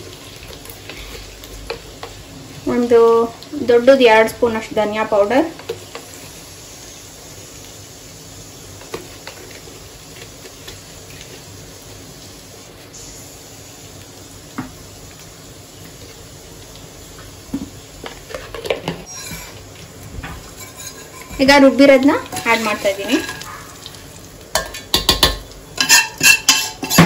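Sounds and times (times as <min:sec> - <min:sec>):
faint hiss: 0:09.6 - 0:16.0
pan knocking and clattering: 0:24.5 - 0:27.0.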